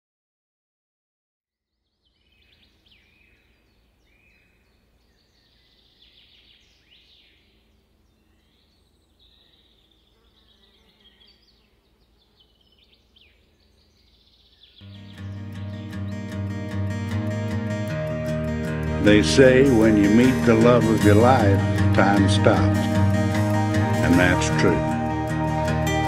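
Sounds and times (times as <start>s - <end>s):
birds chirping and trilling: 1.8s - 26.0s.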